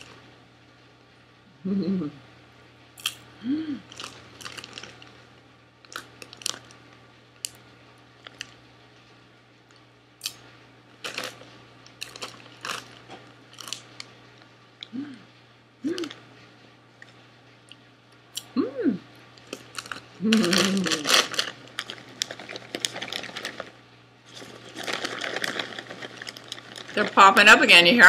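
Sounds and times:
closed-mouth hums: 1.4 - 2.3, 3.4 - 4.0, 14.8 - 16.2, 18.3 - 19.1, 20.2 - 21.3
person chewing crunchy snack: 3.9 - 5.1, 5.9 - 6.7, 11.0 - 13.9, 19.4 - 27.0
foil snack bag crinkling: 3.9 - 6.8, 8.2 - 8.6, 11.0 - 14.1, 19.4 - 28.0.

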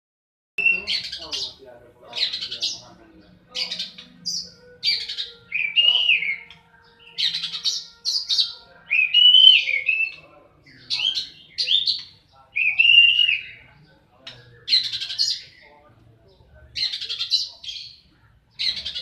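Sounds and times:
bird singing harsh and whistled notes: 0.6 - 19.0.

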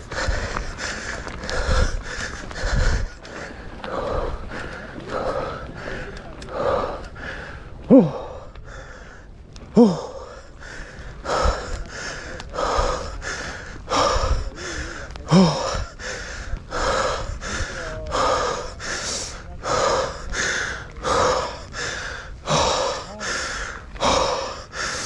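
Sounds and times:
rapid hard breathing: 0.0 - 25.0
person grunting: 7.9 - 8.3, 9.8 - 10.2, 15.3 - 15.8.

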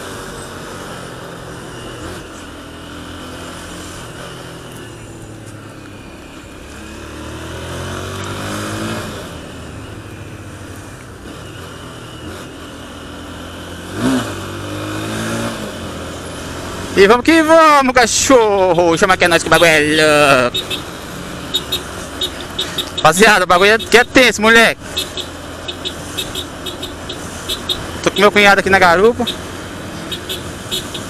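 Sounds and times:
motorcycle engine accelerating: 0.0 - 17.1, 19.4 - 31.0.

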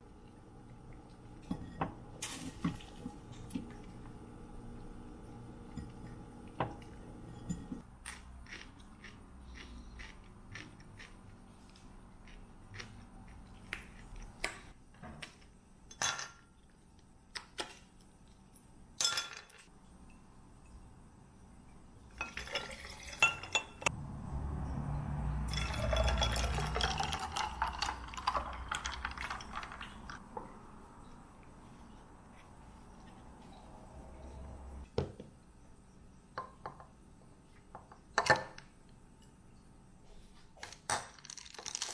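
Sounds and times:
coffee pouring into a glass: 22.2 - 23.8, 25.5 - 30.2
ice clinking in a glass: 22.2 - 23.9, 25.5 - 30.2.

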